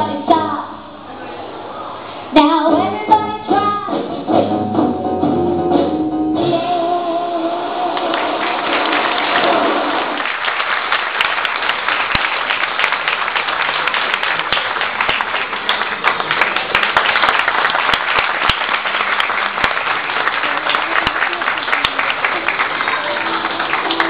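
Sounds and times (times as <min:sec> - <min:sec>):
music: 0:02.4 - 0:08.2
audience applauding: 0:07.9 - 0:24.0.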